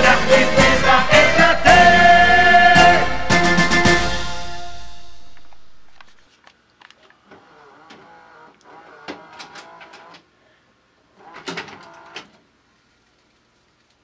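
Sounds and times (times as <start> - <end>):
tape mechanism clicks: 7.8 - 10.3.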